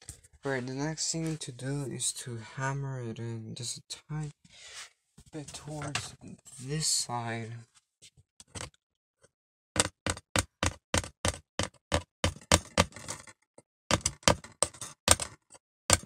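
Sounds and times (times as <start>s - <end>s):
hammer tapping rapidly: 9.8s - 13.0s.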